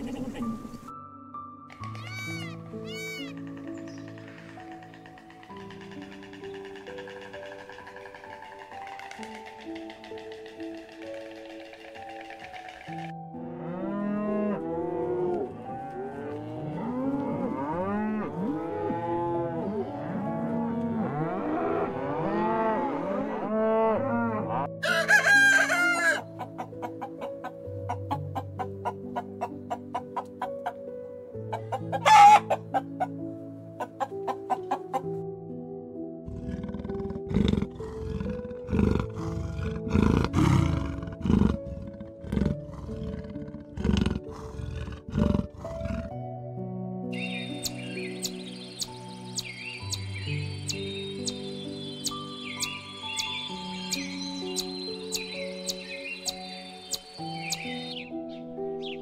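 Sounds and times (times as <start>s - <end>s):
soft background music: 0.0s - 59.0s
repeated bird calls: 1.7s - 13.1s, 47.2s - 59.0s
rooster crowing: 24.8s - 26.3s, 31.9s - 32.6s
hens clucking: 25.1s - 30.8s, 31.5s - 33.1s, 33.8s - 35.1s
deep rumbling animal sounds: 36.2s - 46.2s.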